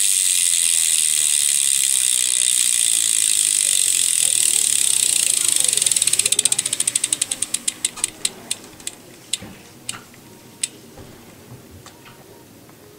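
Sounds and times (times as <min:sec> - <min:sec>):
bicycle hub ratchet clicking: 0:00.0 - 0:09.4.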